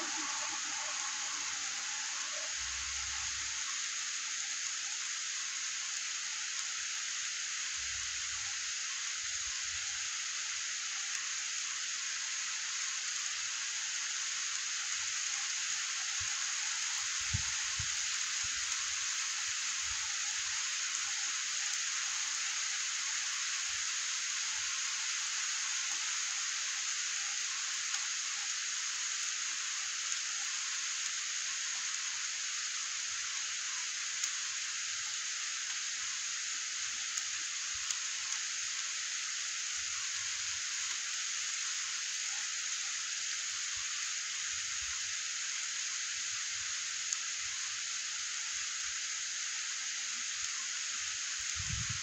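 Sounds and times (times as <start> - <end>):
steady rain hiss: 0.0 - 52.0.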